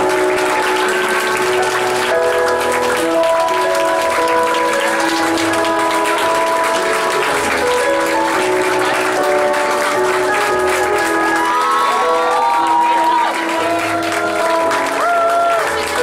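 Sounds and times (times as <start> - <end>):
applause: 0.0 - 16.0
slow background music: 0.0 - 16.0.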